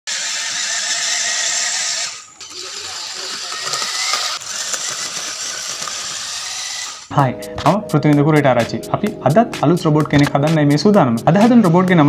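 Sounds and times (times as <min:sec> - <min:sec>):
small gear motors whining: 0:00.1 - 0:07.1.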